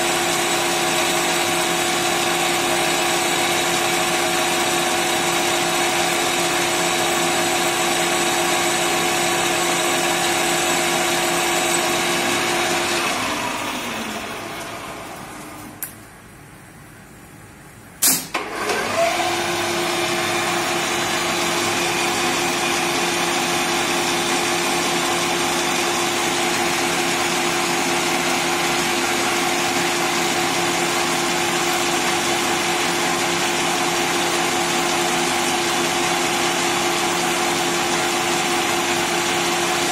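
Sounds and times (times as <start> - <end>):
lathe motor running: 0.0 - 15.8, 18.4 - 39.9
spindle winding down: 18.3 - 39.9.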